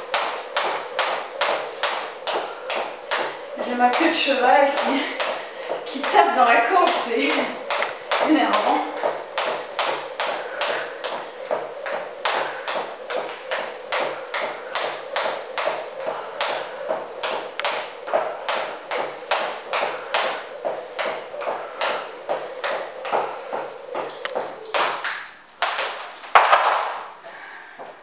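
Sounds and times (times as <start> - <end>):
skipping rope slapping wooden floor: 0.0 - 27.1
interval timer beeping: 24.1 - 25.3.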